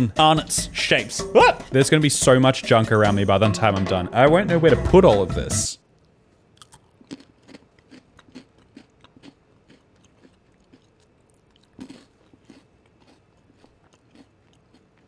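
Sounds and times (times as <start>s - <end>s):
pretzel stick crunching: 6.0s - 15.0s.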